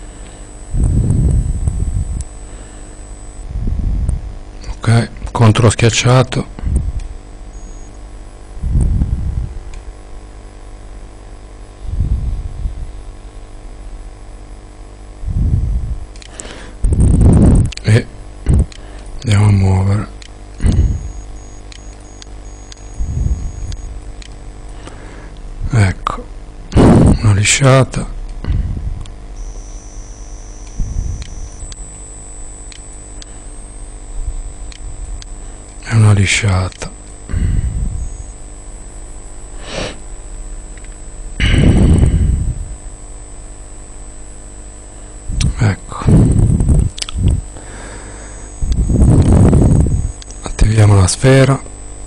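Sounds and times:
high-pitched whine: 0:00.0 - 0:09.6, 0:14.4 - 0:52.0
low electrical hum: 0:00.0 - 0:52.0
short low rumble: 0:26.7 - 0:27.2, 0:41.4 - 0:42.8.

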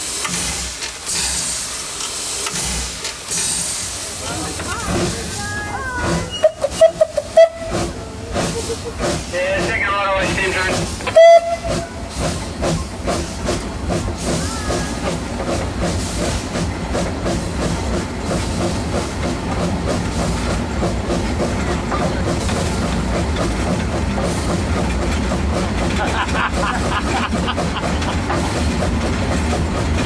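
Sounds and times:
locomotive exhaust beat: 0:00.0 - 0:30.0
steam hissing: 0:00.0 - 0:30.0
wheels on rails: 0:00.1 - 0:30.0
steam whistle blast: 0:11.1 - 0:11.8.

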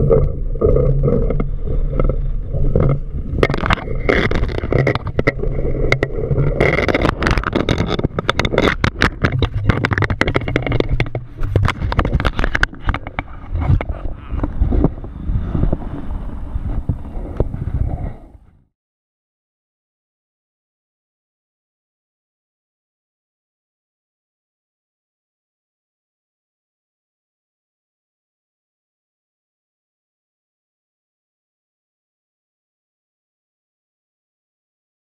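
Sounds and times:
wind rushing over microphone: 0:00.0 - 0:18.7.

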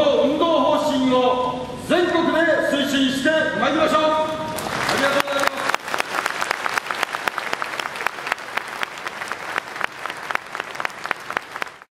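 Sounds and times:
large audience applauding: 0:04.5 - 0:11.9.

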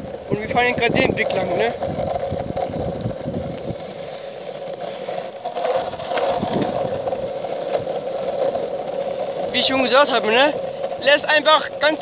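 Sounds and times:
skateboard wheels rolling on asphalt: 0:00.0 - 0:12.0.

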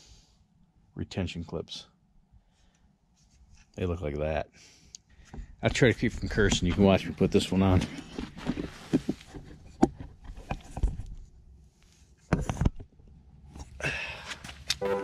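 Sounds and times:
handling clicks and knocks: 0:05.2 - 0:11.2.

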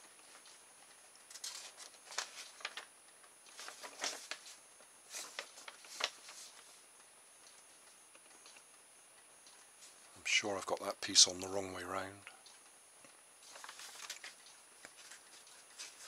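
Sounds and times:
paper booklet pages rustling: 0:00.0 - 0:08.4, 0:13.4 - 0:16.0.

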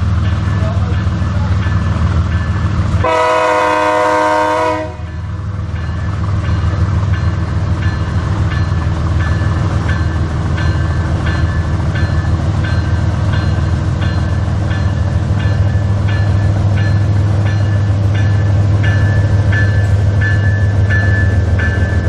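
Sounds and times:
train air horn chord: 0:03.0 - 0:05.1.

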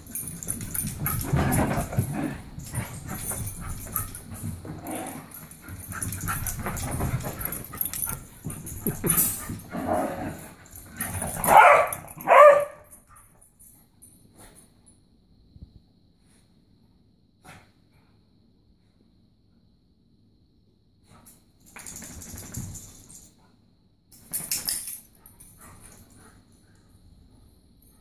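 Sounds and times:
dogs scuffling and playing: 0:00.0 - 0:14.7, 0:21.2 - 0:23.4, 0:24.1 - 0:27.3
dog barking loudly: 0:11.5 - 0:12.9.

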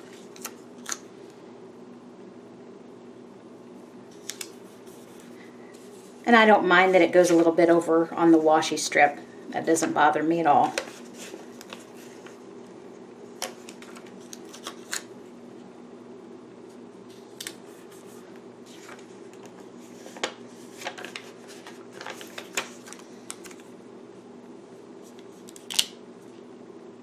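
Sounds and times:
stickers peeling and rustling: 0:13.4 - 0:15.1.

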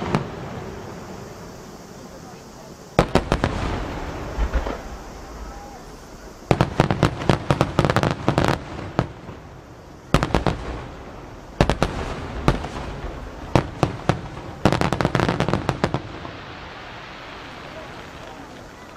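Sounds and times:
firework shells bursting with booms: 0:00.0 - 0:18.9.

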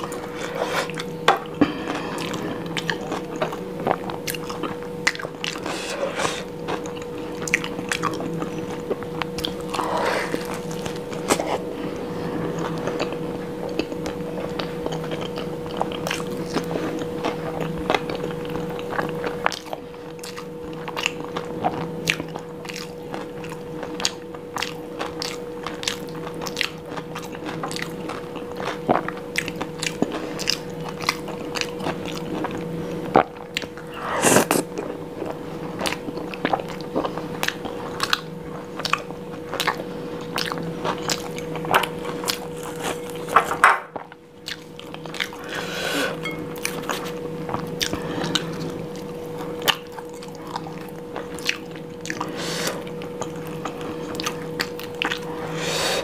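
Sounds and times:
thin steady hum: 0:00.0 - 0:19.0, 0:32.1 - 0:35.7, 0:38.4 - 0:56.0
wet chewing: 0:44.4 - 0:56.0.

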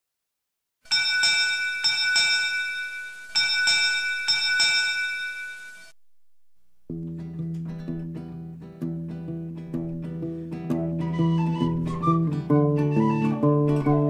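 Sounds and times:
ship's bell ringing: 0:00.9 - 0:05.9.

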